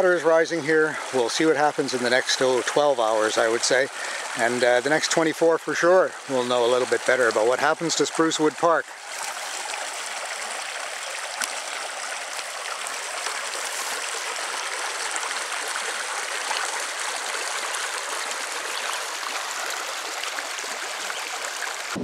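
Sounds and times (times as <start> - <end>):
water running over stones: 0.0 - 22.0.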